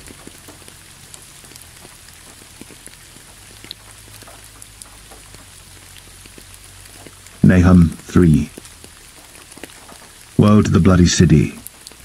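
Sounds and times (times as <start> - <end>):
steady rain falling: 0.0 - 12.0
faint low rumble: 7.3 - 8.7.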